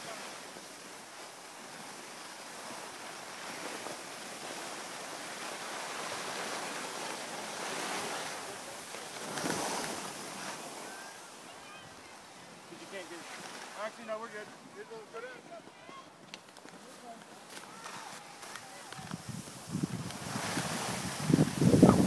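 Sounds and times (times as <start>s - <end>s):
skis scraping over snow: 0.0s - 11.5s, 12.5s - 22.0s
wind rushing over microphone: 19.0s - 22.0s.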